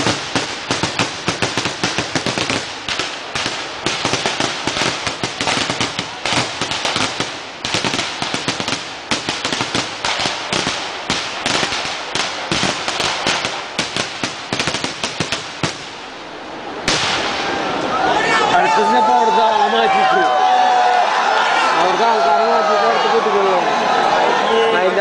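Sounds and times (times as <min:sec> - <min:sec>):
firecrackers banging: 0:00.0 - 0:16.2, 0:16.8 - 0:17.9.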